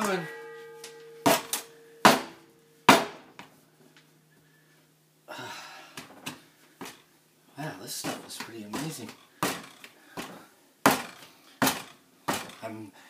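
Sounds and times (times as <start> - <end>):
faint ringing tone: 0.0 - 2.9.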